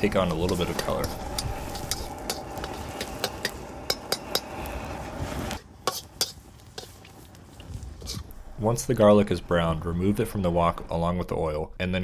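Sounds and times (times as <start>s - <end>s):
metal spatula scraping wok: 0.0s - 8.4s
garlic sizzling in oil: 0.0s - 8.5s.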